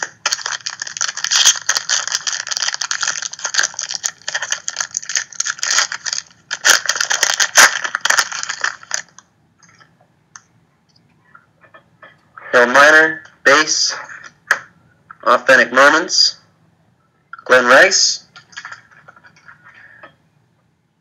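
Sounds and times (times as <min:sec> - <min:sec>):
foil pack crinkling: 0:00.0 - 0:09.2.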